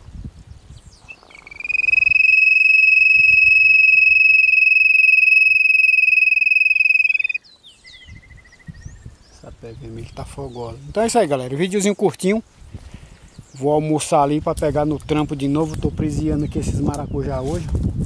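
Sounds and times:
high wooden whistle: 1.1 - 7.4
faint trill of quick notes: 1.4 - 7.4.

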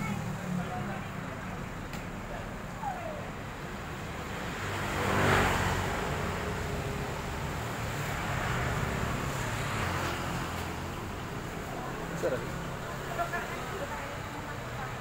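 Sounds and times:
background road noise: 0.0 - 15.0
vehicle passing close by: 3.8 - 15.0.

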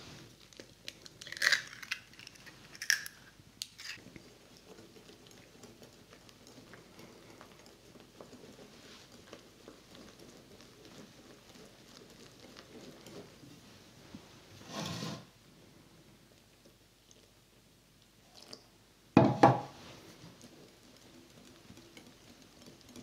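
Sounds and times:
eggshells cracking: 0.8 - 4.0
whisk stirring in glass bowl: 4.0 - 14.2, 19.7 - 23.0.

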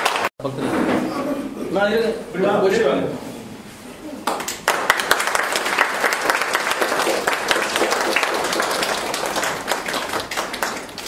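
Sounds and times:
people applauding: 0.0 - 0.3, 4.2 - 11.0.

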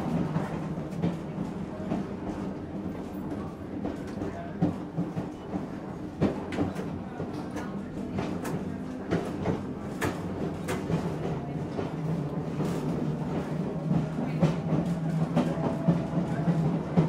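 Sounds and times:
railcar low hum: 0.0 - 17.0.

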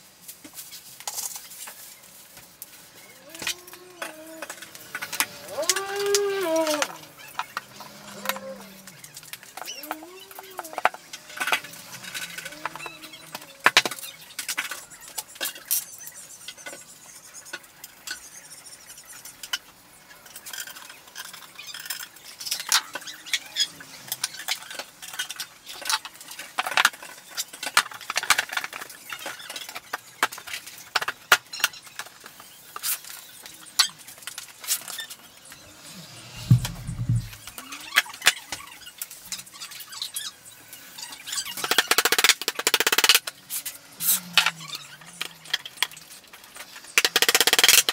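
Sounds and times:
low thud: 36.3 - 37.5.

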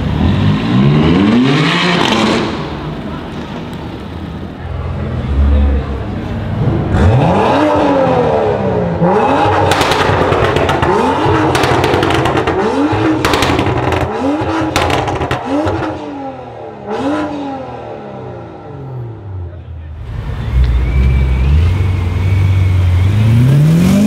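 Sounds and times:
car engine revving: 0.0 - 3.0, 5.2 - 19.4, 20.0 - 24.0
crackling exhaust pops: 9.7 - 12.6, 13.2 - 14.1, 14.7 - 15.9.

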